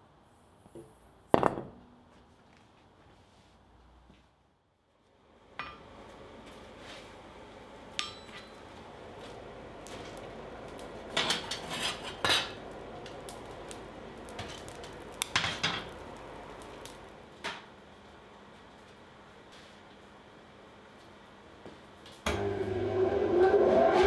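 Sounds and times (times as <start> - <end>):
steel bar clinking on anvil: 8.0 - 8.6
steel tool raking coal: 9.3 - 17.1.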